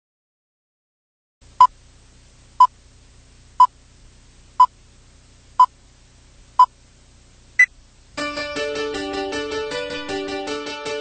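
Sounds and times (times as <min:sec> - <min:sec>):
faint low hum: 0:01.4 - 0:08.3.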